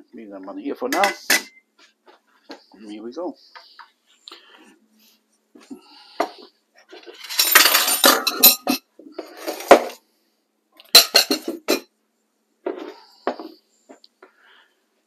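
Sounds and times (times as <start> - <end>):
dishes and utensils clattering: 0.9 - 1.6, 6.2 - 10.0, 10.8 - 11.9.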